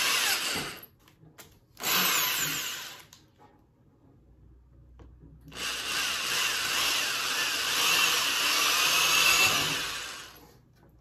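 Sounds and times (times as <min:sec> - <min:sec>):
electric drill whining: 0:00.0 - 0:00.9, 0:01.8 - 0:03.2, 0:05.5 - 0:10.4.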